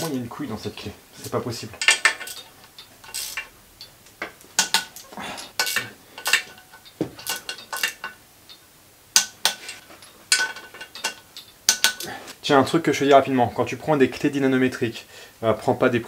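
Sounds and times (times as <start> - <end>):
torque wrench metallic clicks: 1.8 - 8.6.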